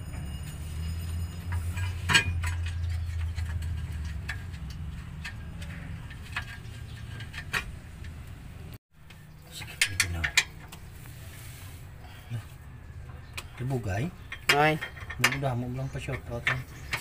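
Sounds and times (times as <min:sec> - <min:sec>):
hand tools clicking on metal: 0:13.4 - 0:17.0.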